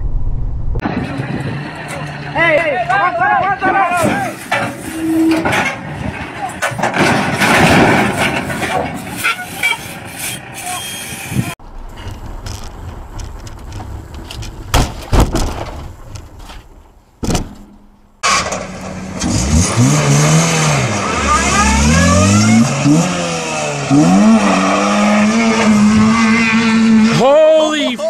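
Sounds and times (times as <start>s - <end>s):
road noise: 0.0s - 28.0s
tyres spinning on gravel: 11.6s - 17.2s
car engine revving: 18.2s - 27.2s.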